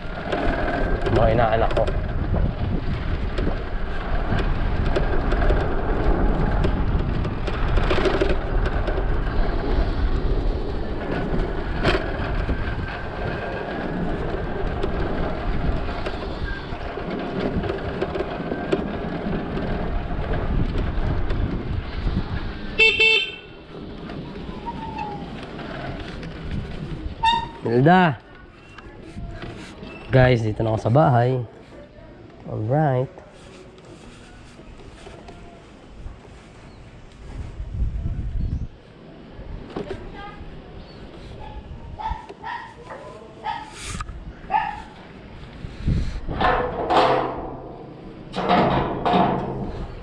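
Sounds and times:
wind and road noise: 0.0 - 50.0
vehicle horn beep: 22.8 - 23.6.

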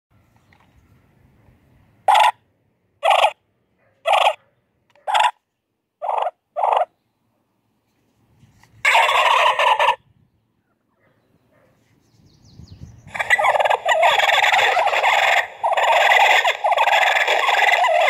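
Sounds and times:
electronic turkey calls: 2.1 - 2.4, 3.0 - 3.4, 4.0 - 4.4, 5.0 - 5.4, 6.0 - 6.9, 8.8 - 10.0, 13.1 - 18.0
loud turkey gobble: 2.1 - 2.4, 3.0 - 3.4, 4.0 - 4.4, 5.1 - 5.4, 6.0 - 6.9, 8.8 - 10.0, 13.1 - 18.0.

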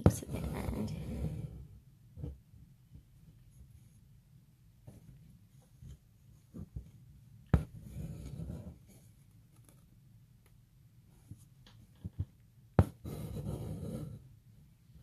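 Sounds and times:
needle tapping through fabric: 5.8 - 8.7, 11.3 - 14.0
thread drawn through with rasp: 7.5 - 8.9, 12.8 - 14.2.

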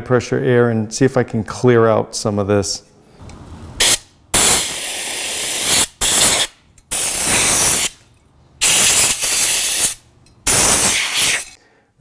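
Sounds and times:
compressed air blasts hissing: 3.8 - 8.0, 8.6 - 11.6.

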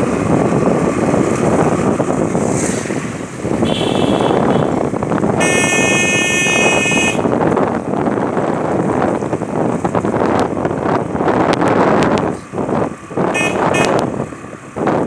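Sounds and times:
motorcycle road noise: 0.0 - 15.0
wind rushing over microphone: 0.0 - 15.0
vehicle horn: 3.6 - 4.8, 5.4 - 7.4, 13.3 - 14.1.

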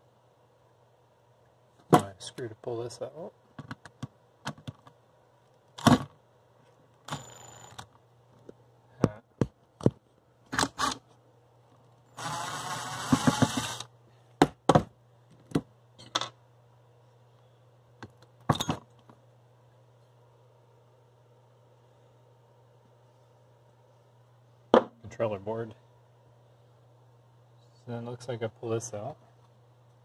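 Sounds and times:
cordless drill-driver whirring: 12.2 - 13.9.

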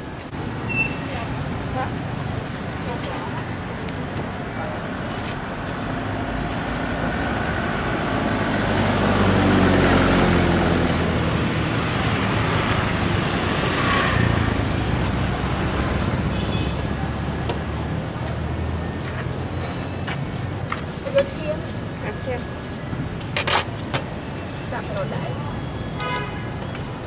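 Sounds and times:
vehicle passing by: 6.2 - 18.8.

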